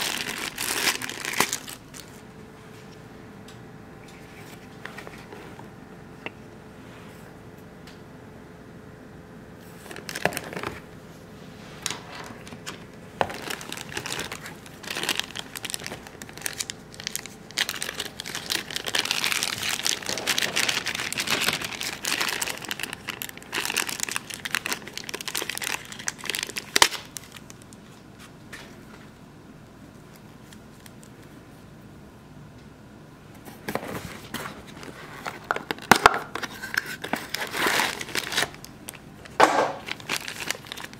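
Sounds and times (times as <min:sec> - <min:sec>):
plastic bag crinkling: 0:00.0 - 0:02.2, 0:09.8 - 0:10.8, 0:12.3 - 0:27.8, 0:34.2 - 0:40.9.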